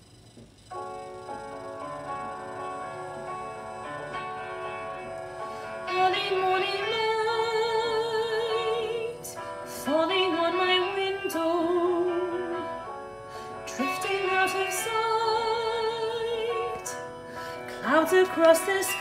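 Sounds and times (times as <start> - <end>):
piano keyboard accompaniment: 0.7 - 19.0
person singing with vibrato: 5.8 - 12.9.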